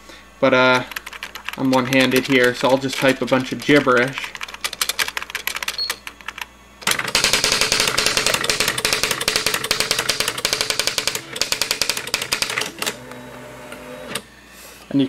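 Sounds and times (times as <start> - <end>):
typewriter motor whir: 0.9 - 14.3
typewriter print-wheel strikes: 1.0 - 4.1, 6.8 - 13.0.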